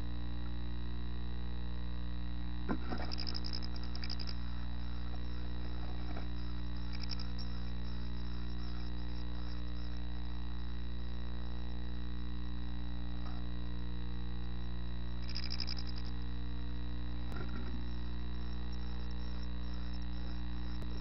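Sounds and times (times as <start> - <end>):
electrical hum: 0.0 - 21.0
nestlings begging calls: 3.1 - 10.0.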